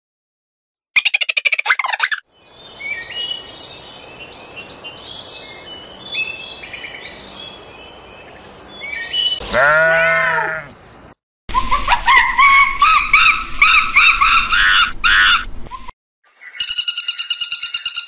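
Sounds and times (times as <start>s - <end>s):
birds chirping and singing: 1.0s - 10.1s, 16.3s - 18.0s
faint hiss: 3.4s - 4.1s
sheep or goat bleating: 9.4s - 10.8s.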